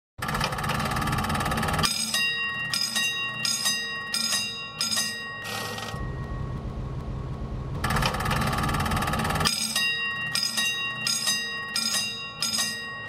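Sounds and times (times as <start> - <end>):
electric train rumbling: 0.2 - 13.0
bell ringing: 1.8 - 6.9, 7.9 - 13.0.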